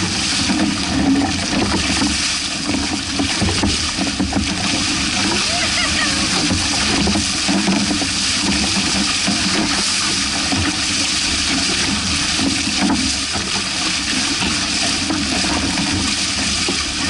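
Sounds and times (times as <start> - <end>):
water splashing along hulls: 0.0 - 17.0.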